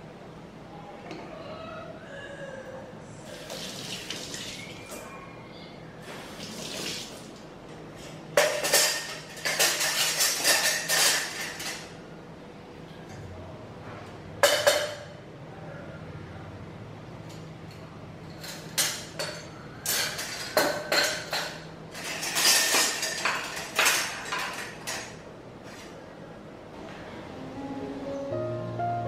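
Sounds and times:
metal utensils clattering: 8.4s - 12.0s, 18.3s - 25.2s.

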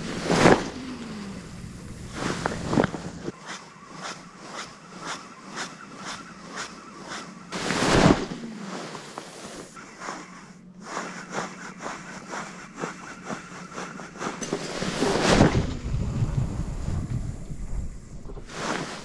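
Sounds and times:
wind buffeting microphone: 15.2s - 18.5s.

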